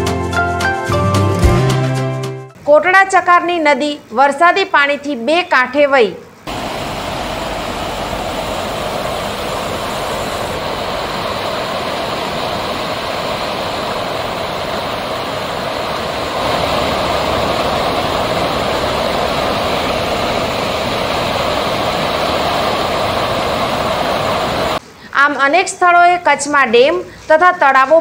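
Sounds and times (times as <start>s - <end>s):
river water rushing: 6.5s - 24.8s.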